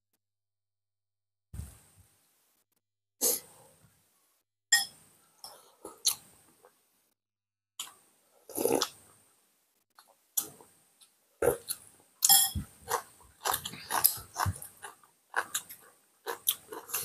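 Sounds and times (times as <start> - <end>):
people biting and chewing food: 12.8 - 17.0.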